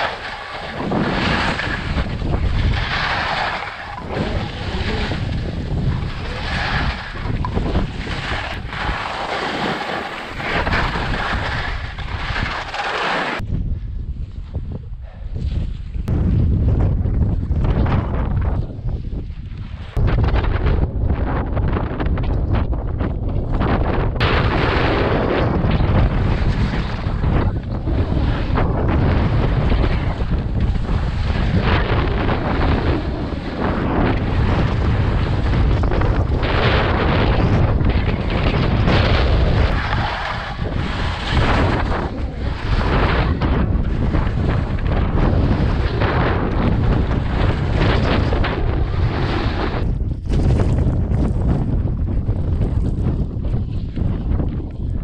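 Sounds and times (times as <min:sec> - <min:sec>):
skis scraping on snow: 0:00.0 - 0:13.4, 0:27.9 - 0:49.8
wind buffeting microphone: 0:00.0 - 0:55.0
skis hissing over snow: 0:02.8 - 0:05.1, 0:08.0 - 0:11.7.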